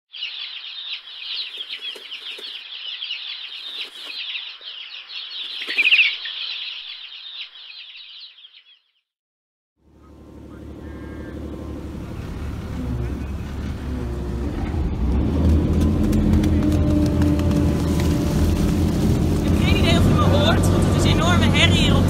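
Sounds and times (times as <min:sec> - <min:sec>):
small birds chirping: 0:00.1 - 0:09.1, 0:19.4 - 0:22.0
bird wing flutters: 0:01.2 - 0:06.4, 0:15.4 - 0:20.0
motorboat engine: 0:09.8 - 0:22.0.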